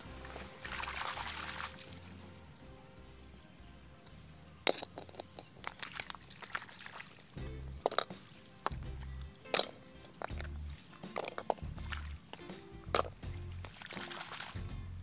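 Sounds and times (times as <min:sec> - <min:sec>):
background music with repeating bass: 0:00.0 - 0:04.8, 0:07.4 - 0:09.4, 0:10.2 - 0:13.8, 0:14.6 - 0:15.0
rustling hiss: 0:00.0 - 0:15.0
handling clicks and rustles: 0:01.8 - 0:14.1
shell clinking into metal strainer: 0:07.8 - 0:08.2, 0:09.5 - 0:10.4.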